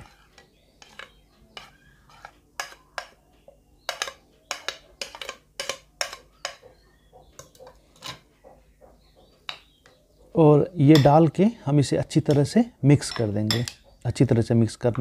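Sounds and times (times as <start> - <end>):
spoon clinking and scraping on plate: 0.0 - 3.2, 3.8 - 8.3, 10.9 - 11.2, 12.3 - 13.8.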